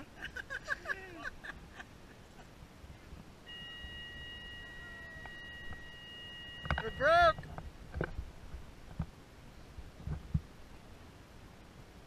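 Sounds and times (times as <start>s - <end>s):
steady high-pitched tone: 3.4s - 7.5s.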